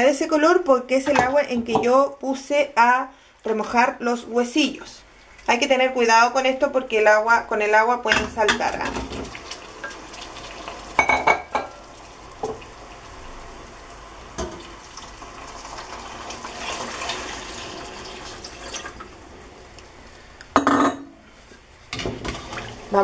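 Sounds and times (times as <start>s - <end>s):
water pouring into a pot: 9.0s - 11.0s, 11.8s - 19.6s, 22.2s - 23.0s.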